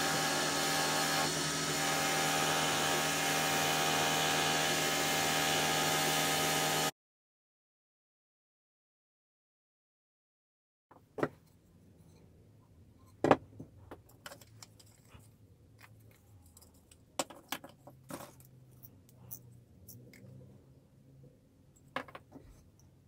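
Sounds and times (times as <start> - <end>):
tools knocking on wooden workbench: 10.9 - 11.4, 13.2 - 13.7, 22.0 - 22.5.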